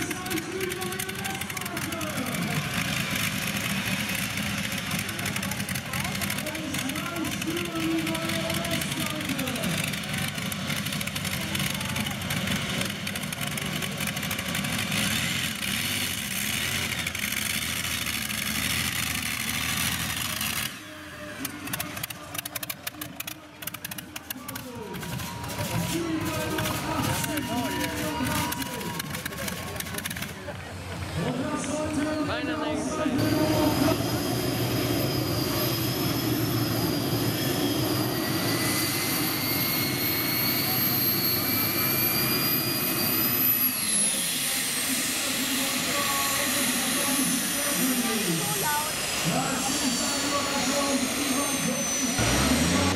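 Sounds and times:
loud tractor engines running: 0:00.0 - 0:52.9
steady high whine: 0:23.9 - 0:52.9
rising whine: 0:31.2 - 0:52.9.

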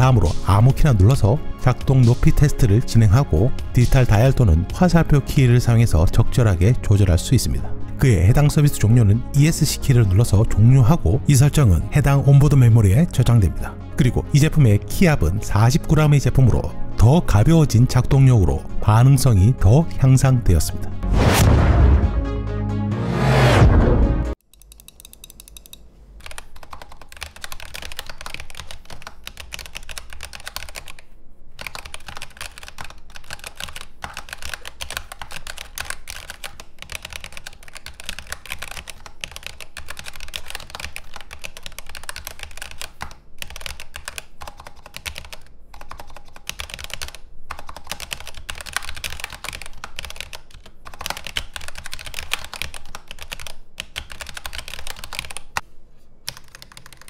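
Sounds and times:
fast typing on a keyboard: 0:00.0 - 0:05.0, 0:24.6 - 0:55.6, 0:56.3 - 0:57.0.

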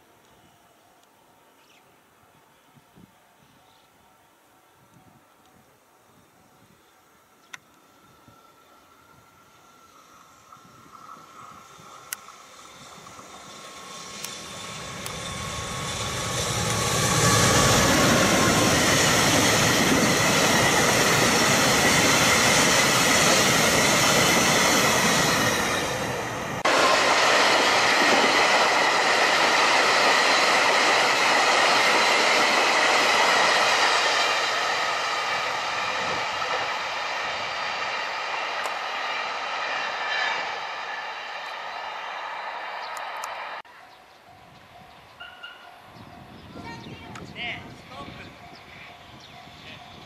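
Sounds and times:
freight train passing: 0:00.0 - 0:50.0
wheels on rail rushing: 0:07.7 - 0:50.0.

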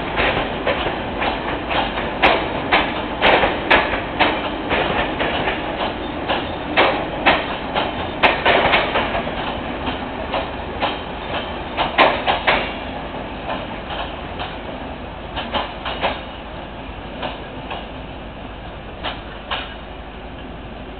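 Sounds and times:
train wheels clacking over rail joints: 0:00.0 - 0:16.5, 0:17.1 - 0:18.0, 0:19.0 - 0:19.9
train rumble: 0:00.0 - 0:20.9.

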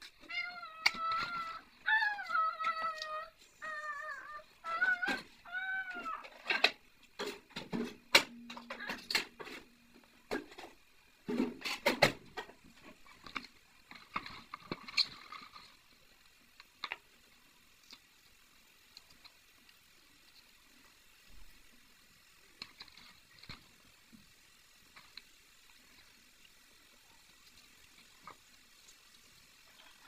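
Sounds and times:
cat meowing: 0:00.2 - 0:06.3.

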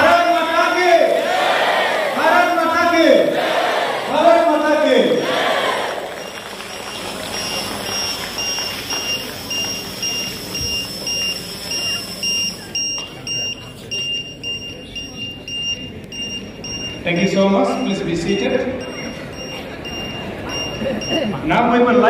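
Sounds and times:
crowd cheering and chattering: 0:00.0 - 0:22.0
high electronic beep: 0:06.1 - 0:21.6.

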